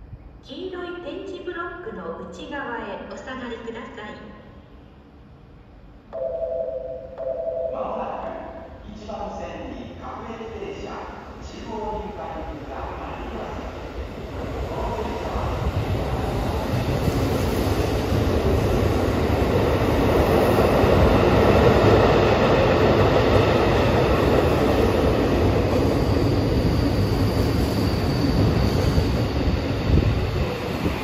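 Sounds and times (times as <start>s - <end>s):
train wheels rumbling on rail: 12.0s - 31.0s.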